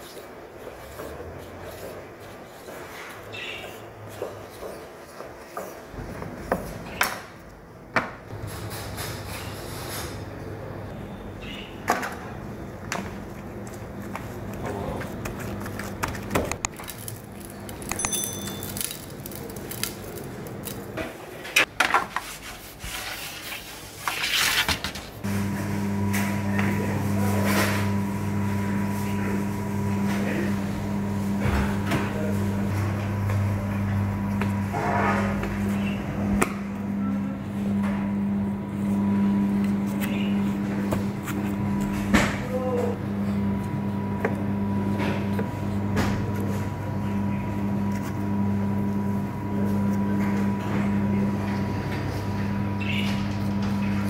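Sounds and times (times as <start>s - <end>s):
low electrical hum: 5.8s - 21.7s, 22.5s - 54.0s
metal trays and utensils clinking: 17.8s - 19.9s
short metallic ring: 18.0s - 18.7s.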